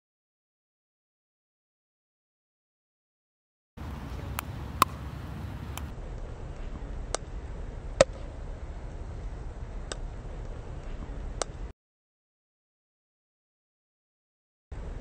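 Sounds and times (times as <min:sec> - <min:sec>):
paddle striking pickleball: 0:03.8 - 0:05.9
steady low rumble: 0:03.8 - 0:11.7, 0:14.7 - 0:15.0
ball bouncing on hard court: 0:04.2 - 0:05.9.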